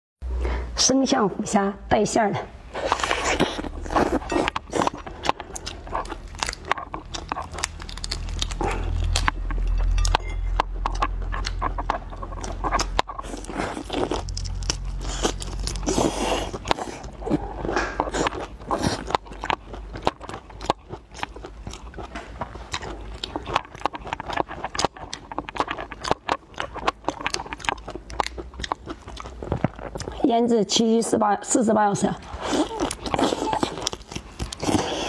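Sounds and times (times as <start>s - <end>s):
wet chewing: 2.7s - 30.6s, 32.2s - 35.0s
prawn shells cracking: 2.9s - 17.2s.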